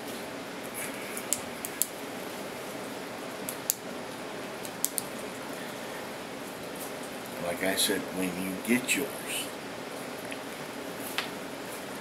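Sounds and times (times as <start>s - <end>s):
steady room hiss: 0.0s - 12.0s
small sharp clicks: 4.6s - 5.1s.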